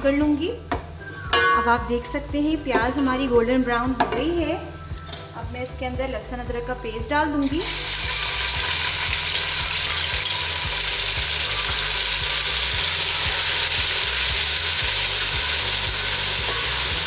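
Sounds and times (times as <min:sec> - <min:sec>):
paste sizzling in hot oil: 0:07.4 - 0:17.0.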